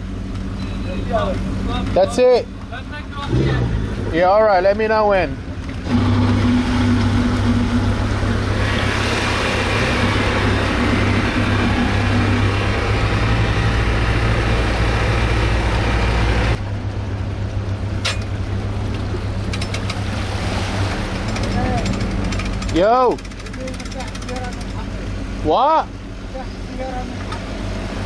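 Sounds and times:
engine running: 0.0s - 28.0s
loud rushing noise: 5.8s - 16.6s.

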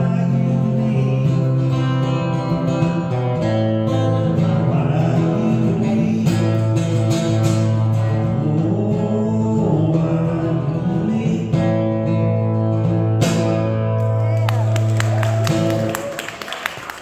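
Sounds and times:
man singing: 0.0s - 13.0s
acoustic guitar strumming: 0.0s - 14.4s.

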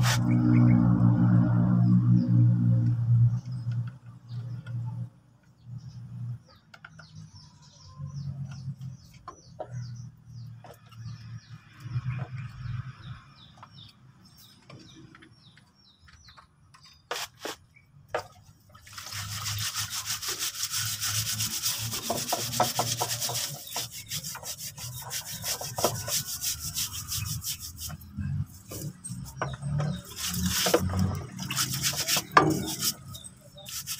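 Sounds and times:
brush scrubbing metal: 0.0s - 0.4s, 18.9s - 33.9s.

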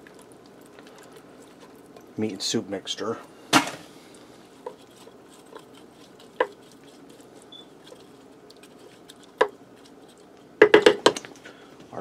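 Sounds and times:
spoon squishing and stirring beans: 0.0s - 11.5s
spoon knocking against pot: 10.6s - 11.2s.

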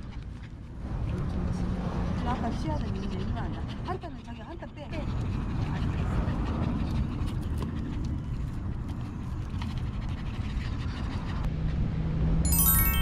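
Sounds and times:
dog panting: 0.0s - 11.5s
bright chime notes: 12.4s - 13.0s.

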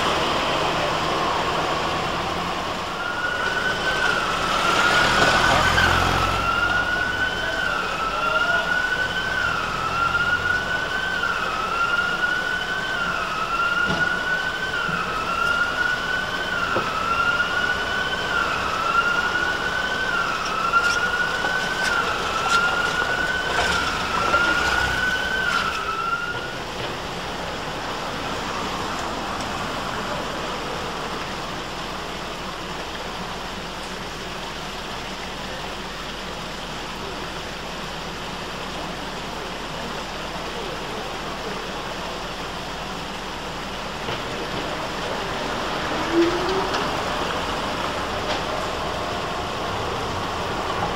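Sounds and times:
street noise: 0.0s - 50.9s
electronic siren sweeping: 2.9s - 26.6s.

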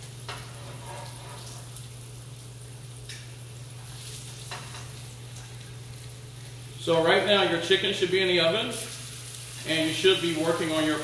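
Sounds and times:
potatoes sizzling in fat: 0.0s - 11.0s.

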